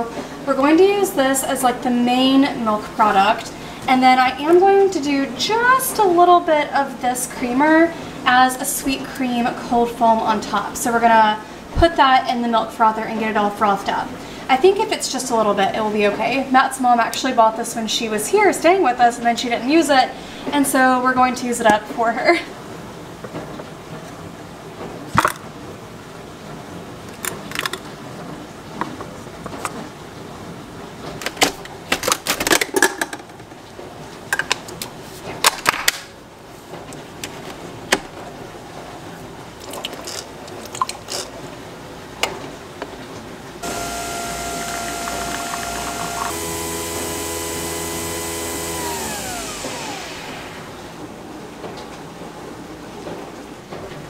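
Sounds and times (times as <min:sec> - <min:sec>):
coffee machine whine: 0:43.6 - 0:51.5.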